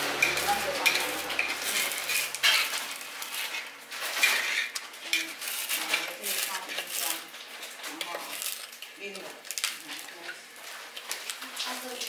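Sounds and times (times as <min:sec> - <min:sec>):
metal rod scraping a metal pan: 0:00.0 - 0:08.2.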